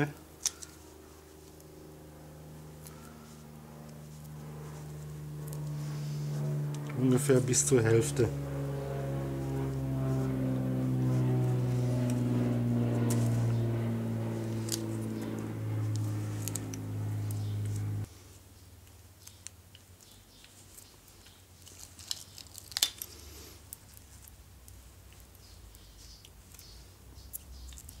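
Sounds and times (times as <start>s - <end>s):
machine hum: 0.0s - 18.2s
faint clicks and rustles of tool: 0.4s - 1.8s, 2.6s - 8.0s, 11.1s - 13.7s, 14.3s - 28.0s.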